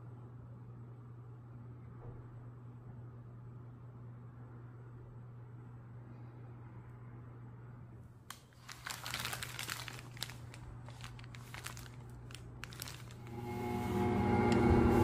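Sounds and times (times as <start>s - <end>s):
foil wrapping paper crinkling: 8.3s - 13.4s
stand mixer motor running: 13.2s - 15.0s.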